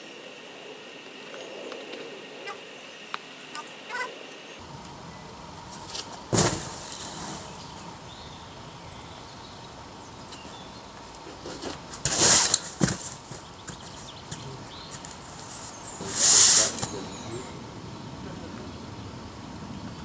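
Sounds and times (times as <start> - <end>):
body thudding onto crash pad: 5.7 - 7.9, 11.4 - 14.3.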